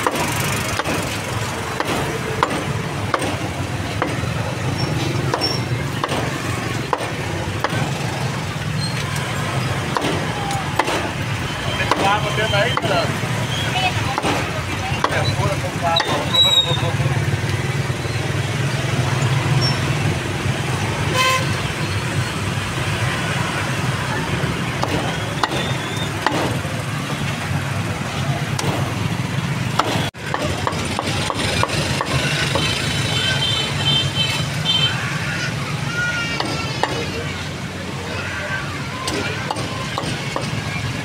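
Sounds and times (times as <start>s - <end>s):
road traffic rumble: 0.0s - 41.0s
cleaver chopping on wooden block: 1.8s - 3.4s, 9.9s - 11.1s, 11.9s - 12.1s, 24.8s - 26.6s, 29.8s - 32.7s
vehicle horn toot: 21.1s - 21.7s.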